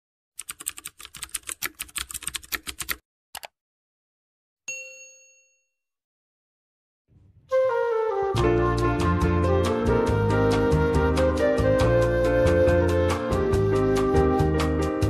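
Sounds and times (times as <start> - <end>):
keyboard typing clicks: 0.4 - 3.6
bell ding: 4.7 - 5.8.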